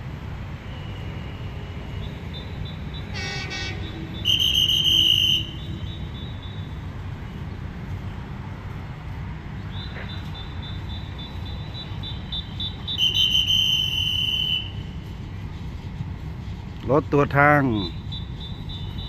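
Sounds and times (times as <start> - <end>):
low steady rumble: 0.0 - 19.0
rail vehicle horn toots: 0.8 - 6.2, 12.8 - 15.1.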